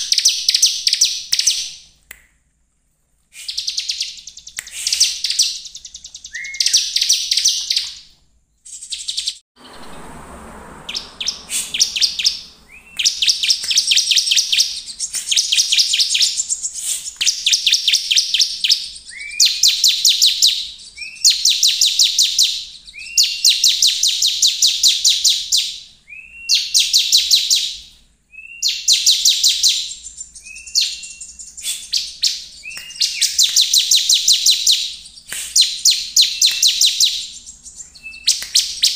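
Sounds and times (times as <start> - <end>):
bird song with buzzy trill: 0.0 - 1.9, 3.4 - 10.1, 10.8 - 38.9
burst of noise: 9.6 - 13.0.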